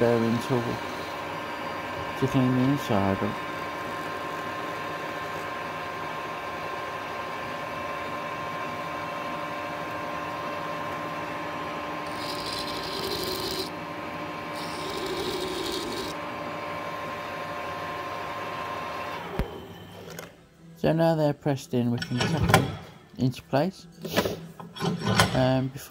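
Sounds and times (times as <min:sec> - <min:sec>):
metal lathe gear whine: 0:00.0 - 0:13.8, 0:14.5 - 0:16.3
deburring tool scraping metal: 0:12.0 - 0:13.7, 0:14.6 - 0:16.2.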